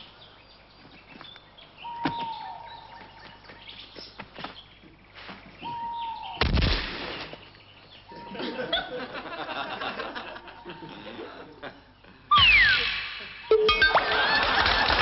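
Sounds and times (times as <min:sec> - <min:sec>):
chirping noises: 0:00.0 - 0:14.3
steady electronic beep: 0:12.3 - 0:14.2.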